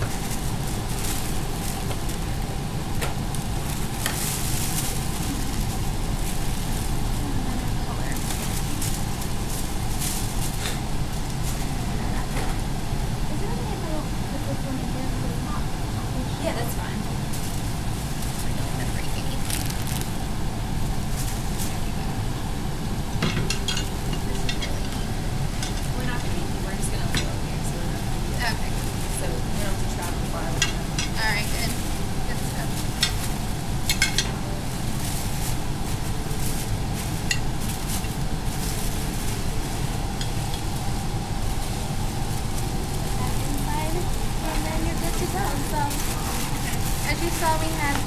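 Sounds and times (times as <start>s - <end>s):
tissue paper crinkling: 0.0s - 12.2s, 17.3s - 20.2s, 20.8s - 22.0s, 28.3s - 48.0s
low background rumble: 0.0s - 48.0s.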